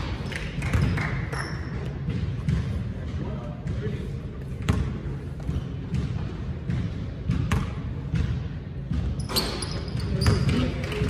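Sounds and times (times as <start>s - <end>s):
basketball bouncing on court: 0.0s - 11.0s.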